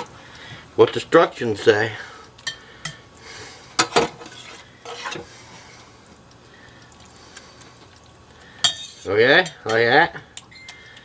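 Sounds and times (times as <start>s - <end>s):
spoon clinking against pot: 8.6s - 9.8s.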